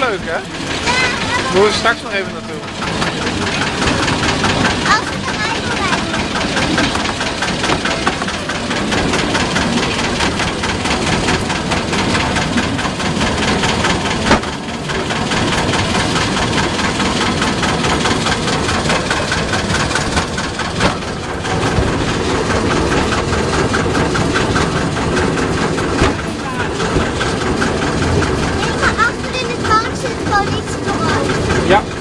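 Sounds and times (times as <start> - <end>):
locomotive engine running: 0.0 - 32.0.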